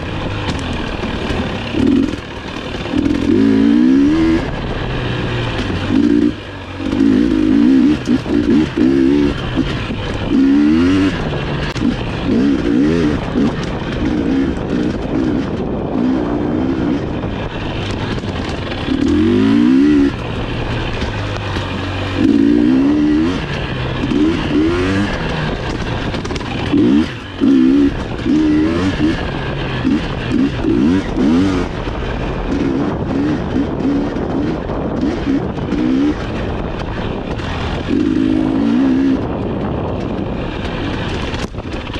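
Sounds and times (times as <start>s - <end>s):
dirt bike engine revving: 0.0s - 41.9s.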